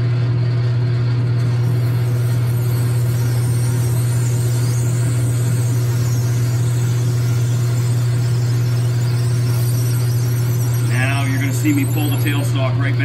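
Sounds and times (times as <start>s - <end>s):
metal lathe humming: 1.3s - 13.0s
drill boring into nylon bar: 1.4s - 13.0s.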